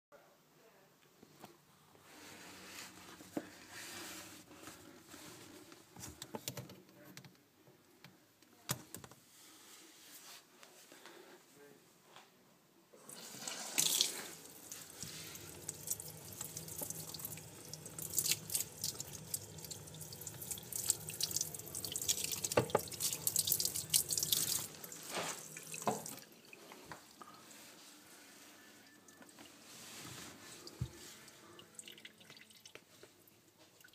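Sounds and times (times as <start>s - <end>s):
knocks and handling sounds: 4.3s - 9.3s
tap running into steel sink: 22.5s - 23.0s.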